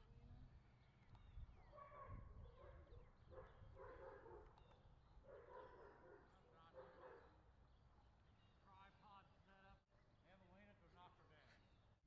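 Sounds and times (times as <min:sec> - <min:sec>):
faint dog barking: 0:01.7 - 0:04.6, 0:05.2 - 0:07.4.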